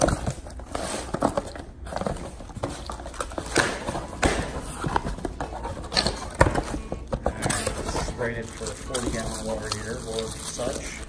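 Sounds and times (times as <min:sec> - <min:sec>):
packing tape peeled and torn: 0:07.3 - 0:11.0.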